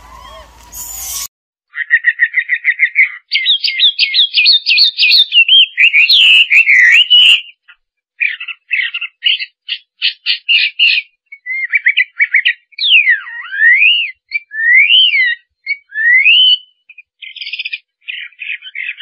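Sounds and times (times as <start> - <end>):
bird whistled calls sliding in pitch: 0.0 - 1.3
bird chirps: 0.0 - 19.0.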